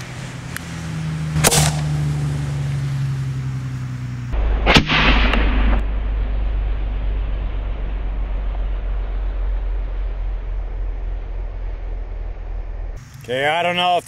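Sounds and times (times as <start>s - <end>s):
cannon firing crack: 1.3s - 2.6s, 4.3s - 13.0s
loud bang with echo: 4.4s - 6.6s.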